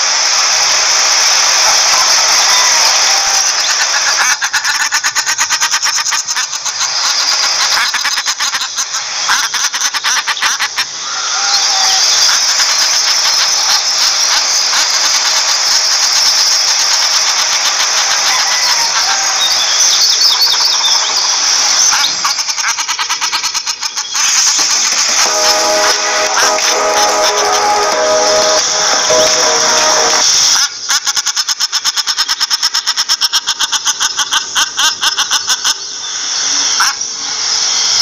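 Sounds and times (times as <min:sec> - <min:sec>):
short whistled notes: 0:24.2 - 0:30.4.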